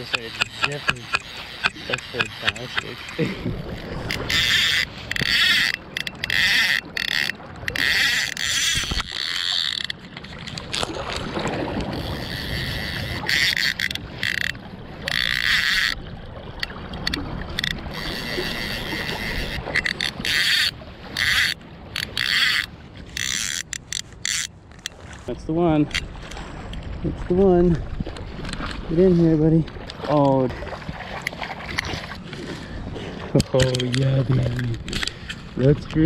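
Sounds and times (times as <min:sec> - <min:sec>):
fishing reel ratchet buzzing: 0:00.0 - 0:10.0, 0:11.9 - 0:16.0, 0:17.1 - 0:24.5.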